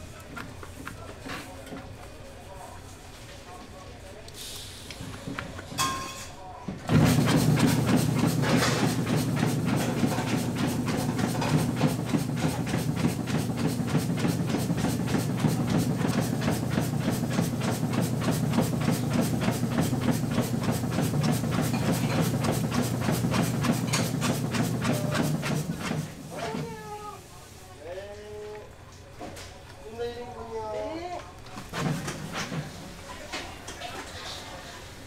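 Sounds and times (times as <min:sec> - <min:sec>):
stuffing machine humming and clacking: 0:06.9 - 0:26.7, 0:31.6 - 0:32.9.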